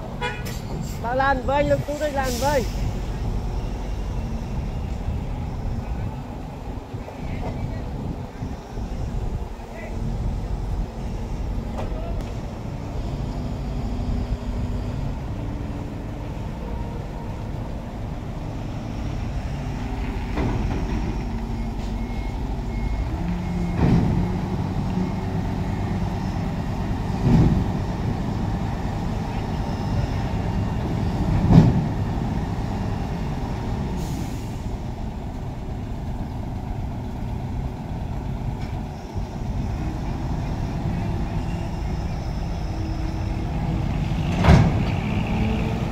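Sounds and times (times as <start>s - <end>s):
diesel engines idling: 0.0s - 45.9s
air brake hiss: 1.9s - 3.0s, 34.0s - 34.8s.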